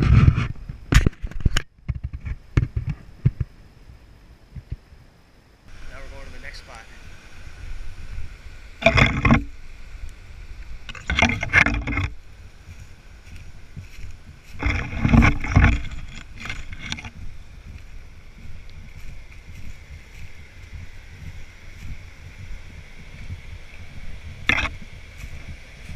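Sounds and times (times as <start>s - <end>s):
rubbing on camera microphone: 0.0s - 0.6s, 10.9s - 17.4s.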